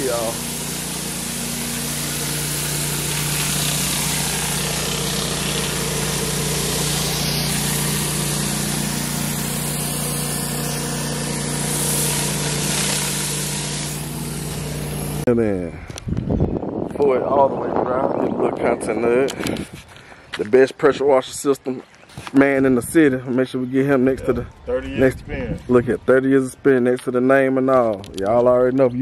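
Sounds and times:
high-pressure water hissing: 0.0s - 15.3s
pressure washer engine hum: 0.0s - 15.3s.

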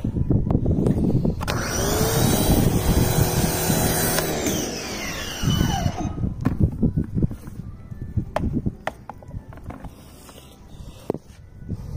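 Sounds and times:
pressure washer motor whine: 1.4s - 6.2s.

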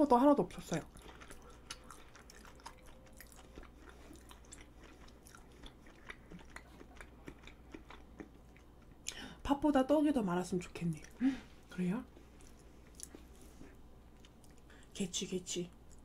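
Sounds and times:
faint chewing mouth clicks: 0.6s - 9.2s, 12.2s - 14.8s.

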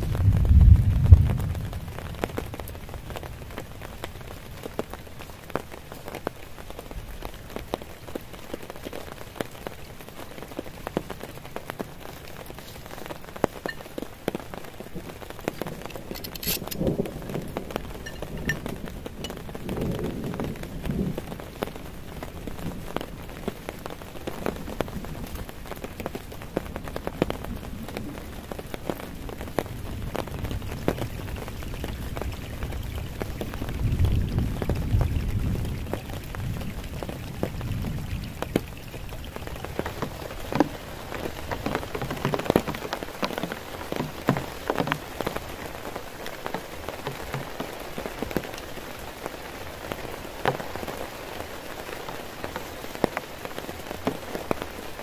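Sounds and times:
low rumble: 0.0s - 2.5s
heavy rain on a tarp: 0.0s - 55.0s.

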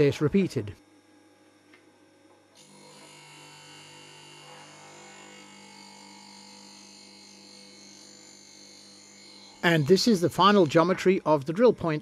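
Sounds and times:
grinding motor humming: 2.6s - 11.0s.

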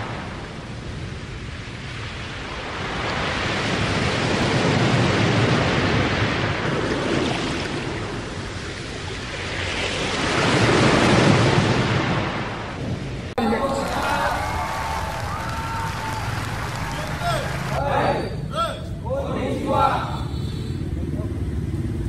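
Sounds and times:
loud rushing noise: 13.4s - 18.1s.

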